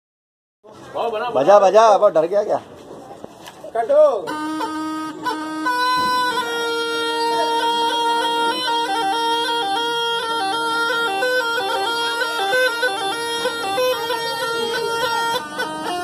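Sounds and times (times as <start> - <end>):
reed pipe melody: 3.9 - 16.0.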